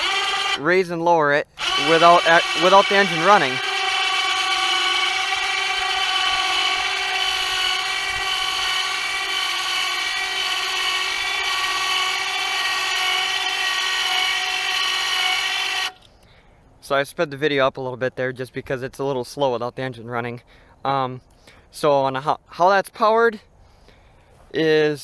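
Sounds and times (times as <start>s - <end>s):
electric winch whine: 0.0s - 0.8s, 1.6s - 16.1s.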